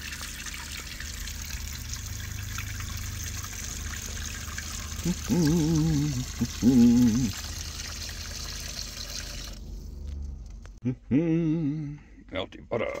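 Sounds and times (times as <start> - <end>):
faucet running into a bowl: 0.0 - 9.7
person's voice: 5.0 - 7.3, 10.9 - 13.0.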